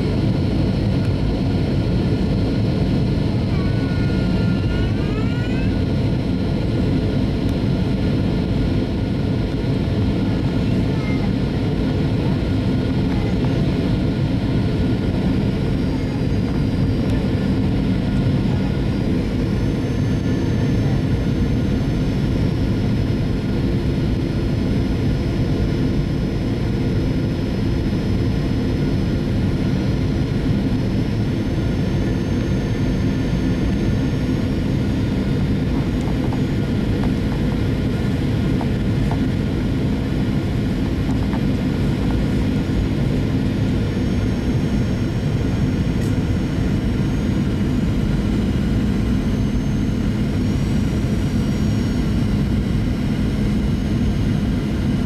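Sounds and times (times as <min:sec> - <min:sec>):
aircraft engine and airflow roar: 0:00.0 - 0:55.0
faint high whine: 0:12.8 - 0:55.0.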